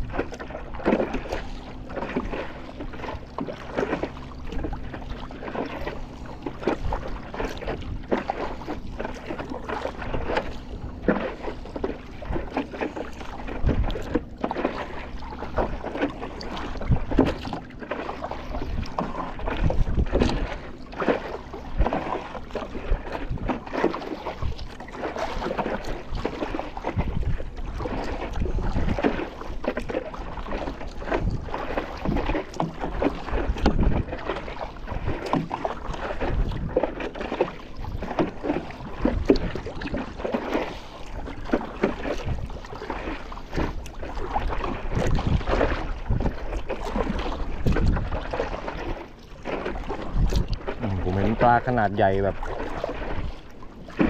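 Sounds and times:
paddle splashing into water: 0.0 - 54.0
water slapping and trickling: 0.0 - 54.0
wind buffeting microphone: 16.5 - 17.7, 18.4 - 20.8, 21.6 - 23.7, 25.5 - 29.2, 35.0 - 36.8, 42.1 - 42.7, 43.5 - 48.9, 49.7 - 53.4.

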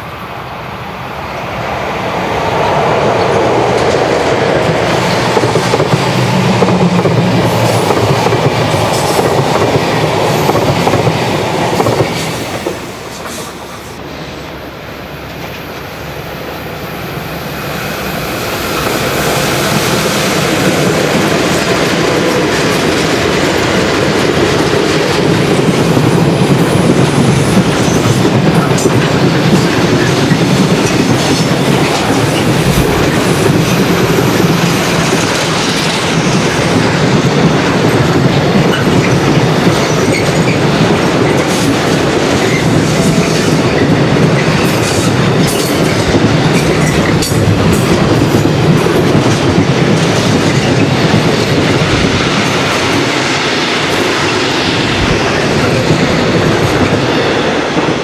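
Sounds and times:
passenger train passing: 0.0 - 58.0
freight train wagons rumbling: 0.8 - 58.0.

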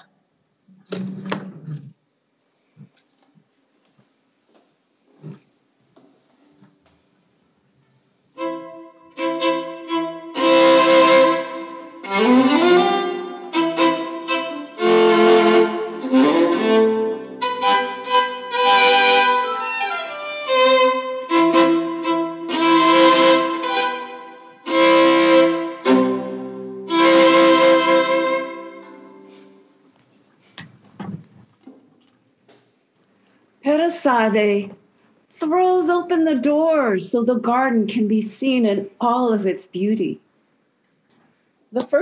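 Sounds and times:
solo violin melody: 8.4 - 29.6.

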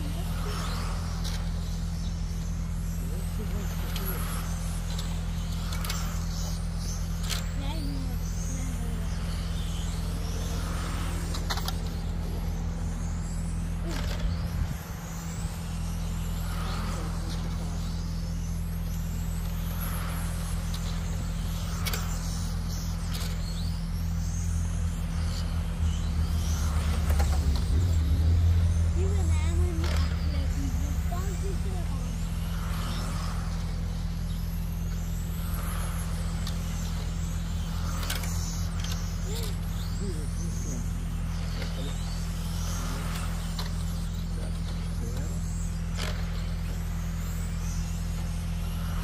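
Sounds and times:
rc cars whining past: 0.0 - 49.0
steady low hum: 0.0 - 49.0.

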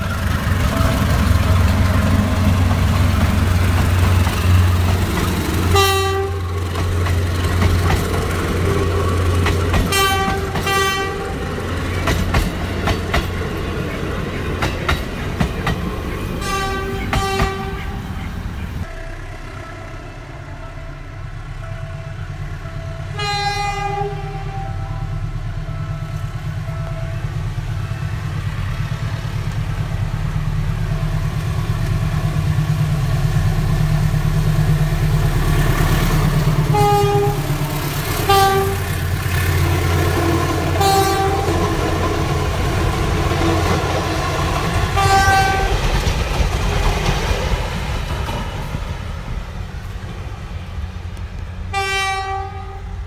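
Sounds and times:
diesel locomotive engine: 0.0 - 53.0
train coaches passing: 0.0 - 53.0
train horn blasts: 5.6 - 6.9, 9.7 - 11.6, 16.4 - 28.2, 36.3 - 42.2, 44.9 - 45.9, 51.7 - 53.0.

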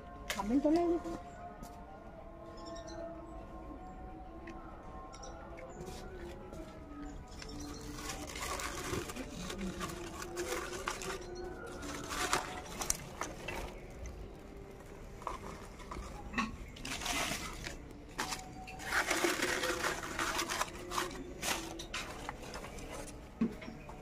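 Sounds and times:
leaves and sticks crackling: 7.1 - 23.4
sticks rustling and knocking: 7.3 - 14.1, 14.8 - 24.0.

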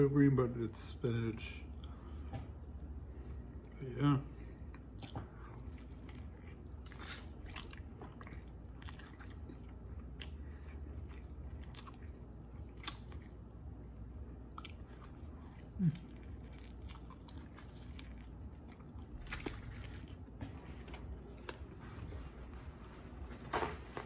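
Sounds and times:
person chewing food: 1.4 - 24.0
low throat sound: 15.6 - 16.3.

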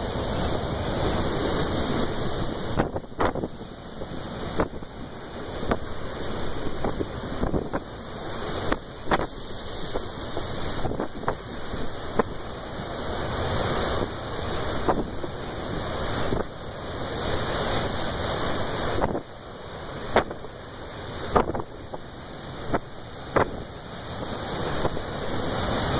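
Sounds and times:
surf breaking: 0.0 - 16.5
wind buffeting microphone: 0.0 - 16.6, 20.0 - 25.9.

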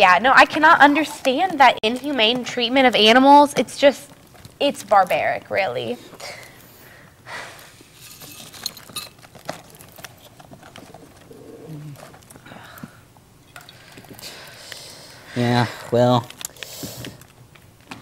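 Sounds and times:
packaging rustling: 8.0 - 12.4.

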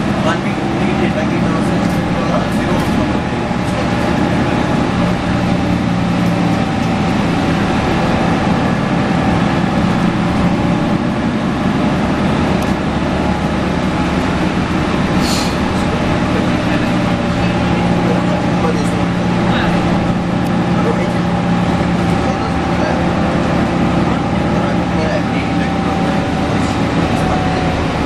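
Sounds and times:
bus engine running: 0.0 - 28.0
road noise: 0.0 - 28.0
short hiss: 15.2 - 15.6.

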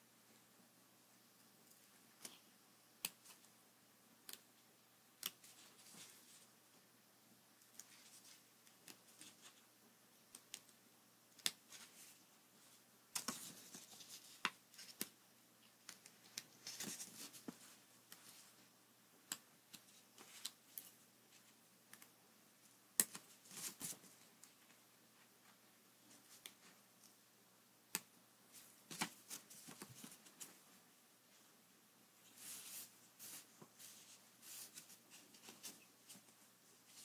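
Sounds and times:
paper rustling: 15.9 - 18.5, 28.5 - 30.6.

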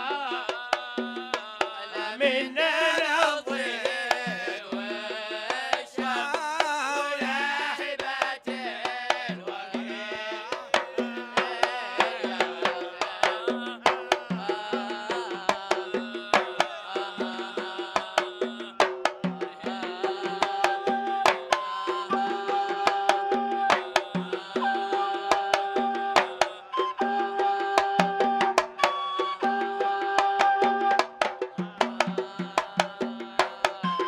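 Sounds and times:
man singing: 0.0 - 28.5, 29.4 - 34.0
hand drums beating: 0.0 - 34.0.

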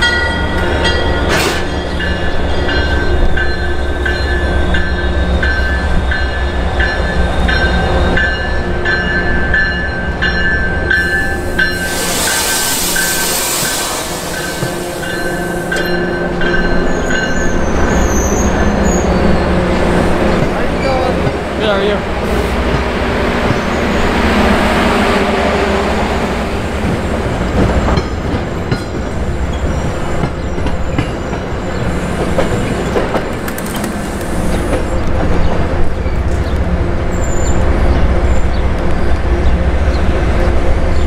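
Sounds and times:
train wheels rumbling on rails: 0.0 - 41.0
high wheel squeal: 11.0 - 16.0, 16.8 - 19.4.

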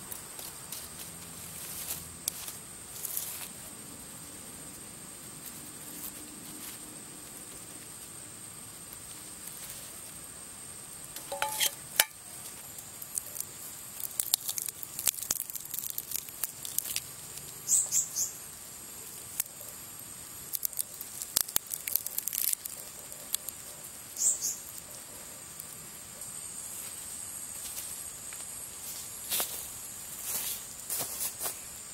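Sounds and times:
charred skin crackling and crunching: 0.1 - 3.7, 8.8 - 26.7.

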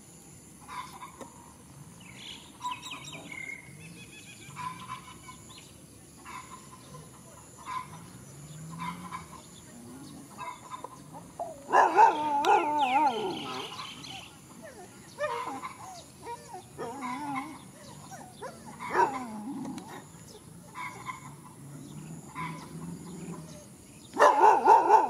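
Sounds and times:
dog growl-like vocalization: 16.6 - 23.7.

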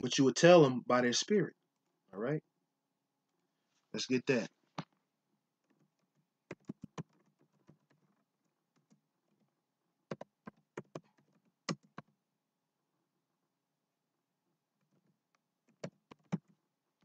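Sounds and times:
keyboard typing clicks: 6.5 - 8.0, 10.1 - 12.1.

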